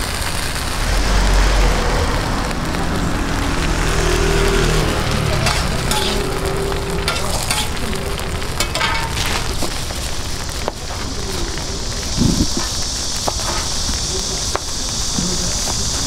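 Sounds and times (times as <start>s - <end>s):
food sizzling on griddle: 0.0s - 16.0s.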